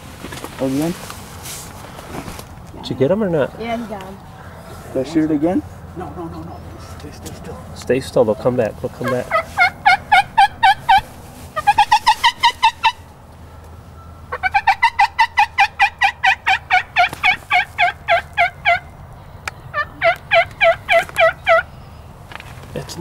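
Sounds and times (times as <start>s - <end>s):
turkey yelping: 8.3s - 13.2s, 14.3s - 22.1s.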